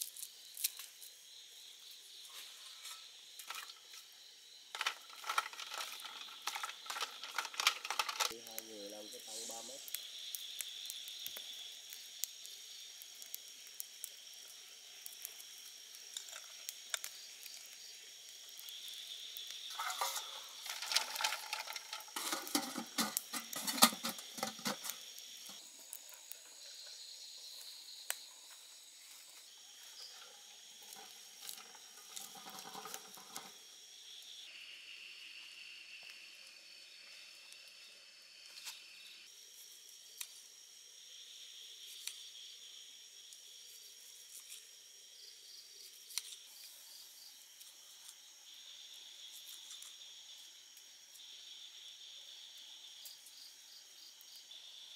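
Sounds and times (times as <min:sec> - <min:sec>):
night insects chirping: 0:00.0 - 0:54.9
crackling and clicking: 0:04.7 - 0:28.7, 0:29.4 - 0:33.7.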